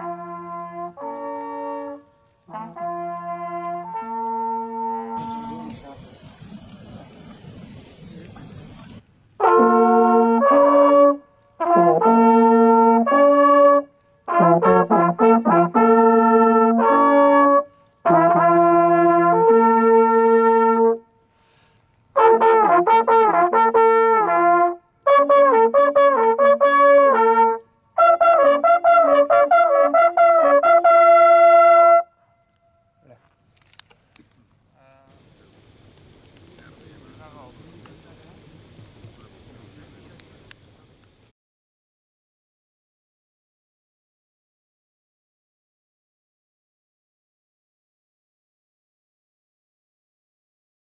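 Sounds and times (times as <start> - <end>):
hunting horn calls: 0.0 - 7.4.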